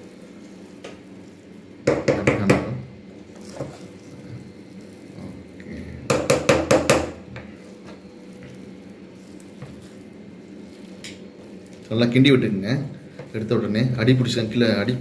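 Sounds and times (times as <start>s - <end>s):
spatula stirring and mashing rice: 0.0s - 15.0s
spatula knocking against metal pot: 1.9s - 2.8s, 6.1s - 7.2s.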